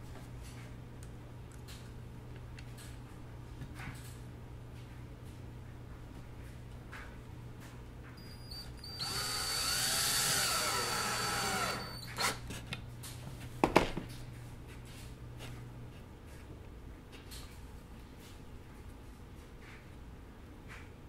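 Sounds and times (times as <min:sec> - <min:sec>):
cordless drill driving screw: 0:08.8 - 0:12.4.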